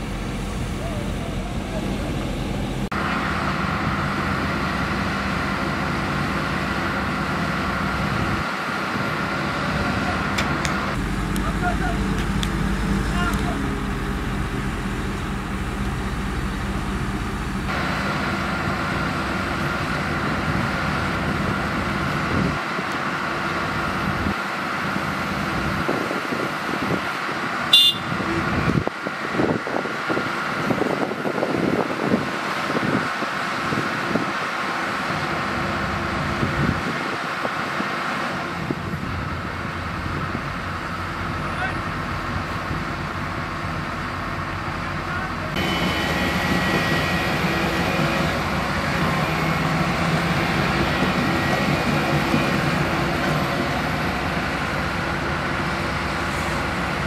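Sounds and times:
heavy machinery diesel engines: 0:00.0 - 0:57.0
high whine: 0:45.0 - 0:57.0.

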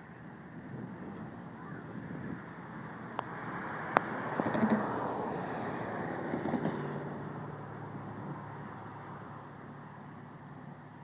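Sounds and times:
light metallic clanks: 0:06.4 - 0:07.0.

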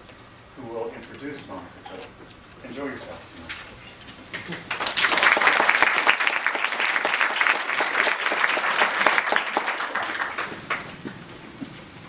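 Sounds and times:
audience applauding: 0:04.4 - 0:11.3.

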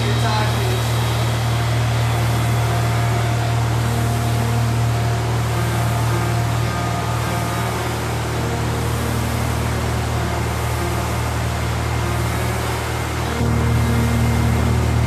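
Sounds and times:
fans whirring: 0:00.0 - 0:15.0
low hum: 0:00.0 - 0:15.0.

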